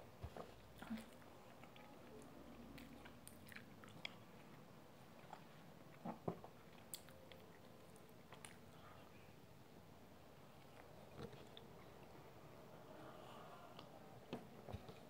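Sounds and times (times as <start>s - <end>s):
person chewing: 0.8s - 4.6s.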